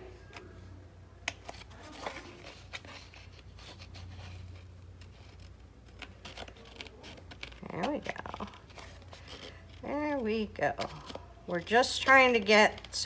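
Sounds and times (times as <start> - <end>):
paper page rustling: 1.3 - 10.2.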